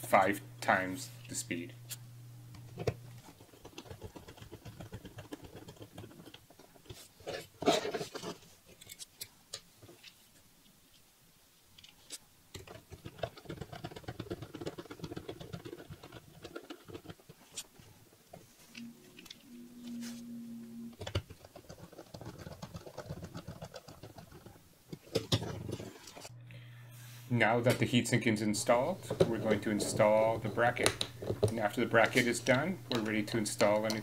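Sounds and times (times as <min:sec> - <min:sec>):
rapid small clicks: 0:03.2 - 0:07.0, 0:11.8 - 0:17.7, 0:21.0 - 0:25.2.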